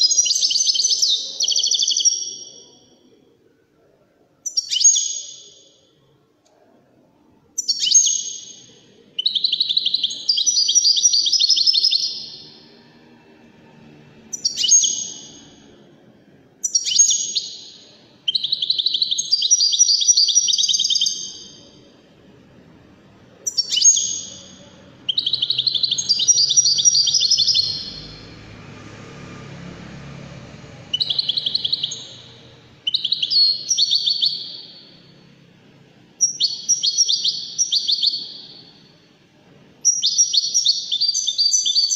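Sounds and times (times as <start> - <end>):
goldfinch singing: 7.6 - 12.7, 14.3 - 15.6, 16.6 - 21.6, 23.4 - 28.4, 30.9 - 35.1, 36.2 - 38.8, 39.8 - 41.9.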